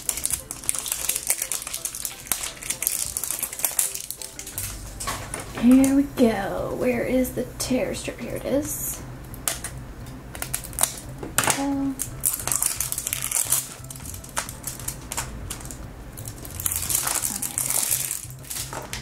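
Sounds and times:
plastic film crinkling and tearing: 0.0s - 6.0s, 10.4s - 19.0s.

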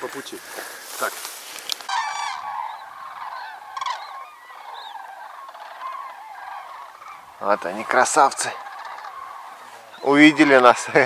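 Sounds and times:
geese honking in flight: 1.9s - 11.0s.

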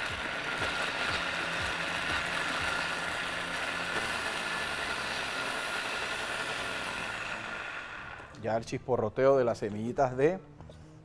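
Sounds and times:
blender motor grinding: 0.0s - 8.4s.

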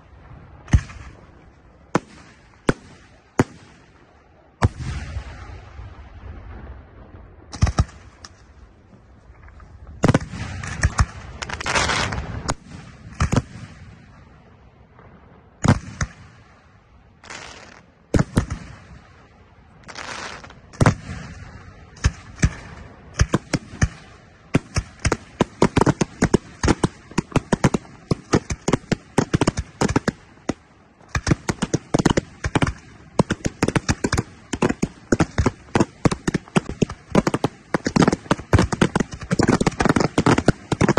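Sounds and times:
fireworks bursting with sharp bangs: 0.0s - 40.9s.

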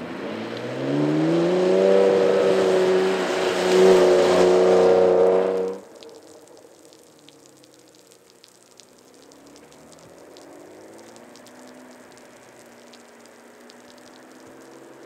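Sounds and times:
distant car engine: 0.0s - 6.3s
rain hiss and crackles: 0.0s - 15.0s.

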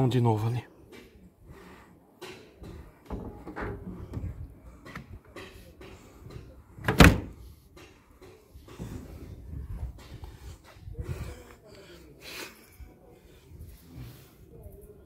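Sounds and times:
loud thump on metal roof: 6.8s - 7.4s.

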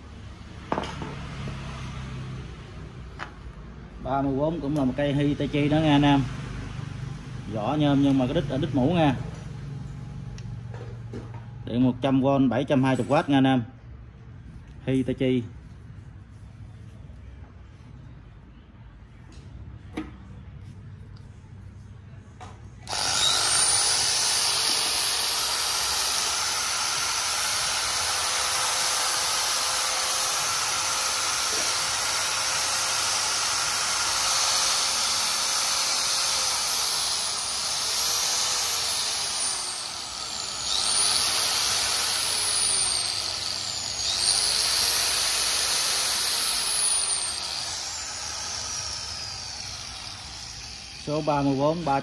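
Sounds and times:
angle grinder whine: 22.8s - 52.0s.

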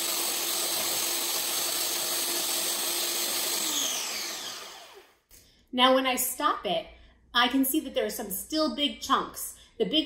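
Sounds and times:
food processor grinding cookies: 0.0s - 5.2s.

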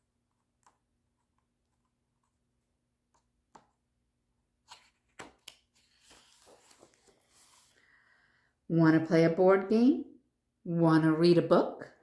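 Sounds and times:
book pages rustling: 4.6s - 7.8s.

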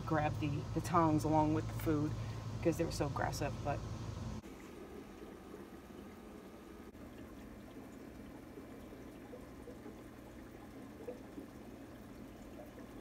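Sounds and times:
aquarium water trickling: 0.1s - 13.0s.

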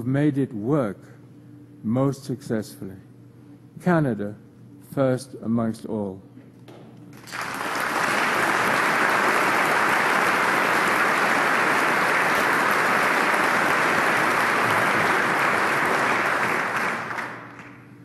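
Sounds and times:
large audience applauding: 7.1s - 17.9s.

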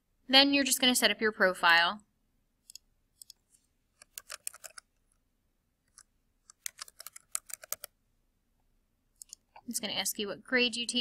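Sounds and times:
computer mouse clicks: 2.6s - 4.9s, 5.8s - 7.9s, 9.2s - 9.7s
keyboard typing: 2.6s - 5.2s, 5.8s - 7.9s, 9.2s - 9.6s.

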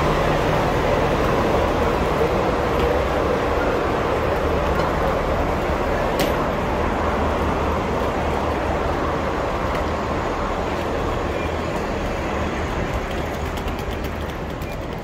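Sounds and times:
buses idling: 0.0s - 15.0s.

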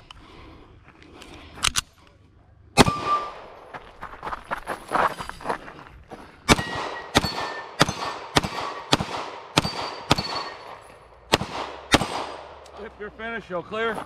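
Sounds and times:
pistol shots: 2.8s - 3.6s, 6.5s - 12.7s
steel targets clanging: 9.6s - 11.1s.

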